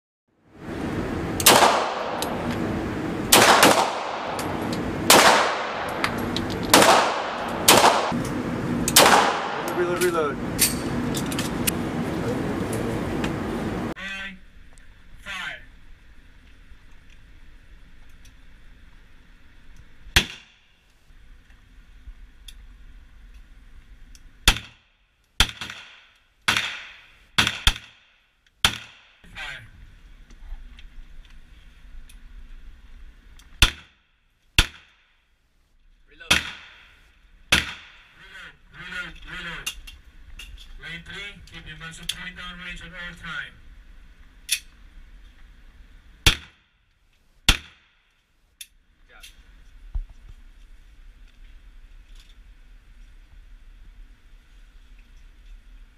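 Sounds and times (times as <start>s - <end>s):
pistol shots echoing indoors: 3.3s - 4.4s, 5.1s - 6.1s, 6.8s - 8.2s.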